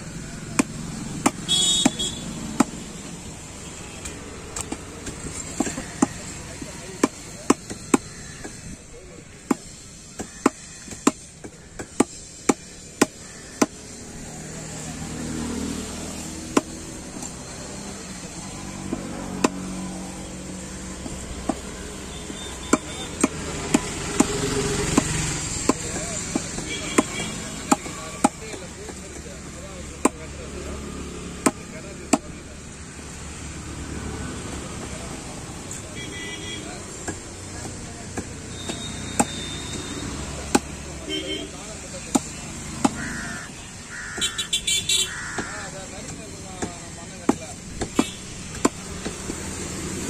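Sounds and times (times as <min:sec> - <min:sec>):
cleaver chopping on wooden block: 0:00.4 - 0:03.1, 0:04.0 - 0:08.8, 0:09.4 - 0:14.0, 0:16.1 - 0:17.8, 0:18.8 - 0:20.0, 0:20.6 - 0:32.8, 0:36.9 - 0:41.1, 0:42.0 - 0:44.4, 0:45.1 - 0:50.0.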